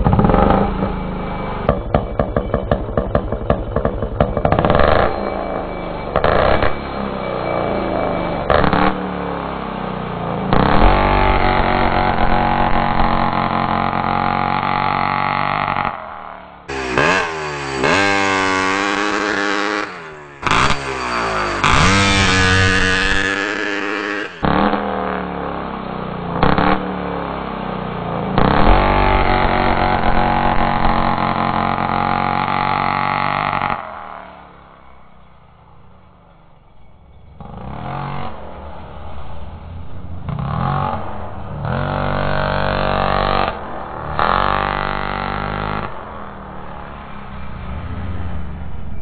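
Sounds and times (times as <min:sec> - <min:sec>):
model car engine revving: 0:03.2 - 0:16.0, 0:16.7 - 0:25.2, 0:28.3 - 0:34.2, 0:40.3 - 0:46.3.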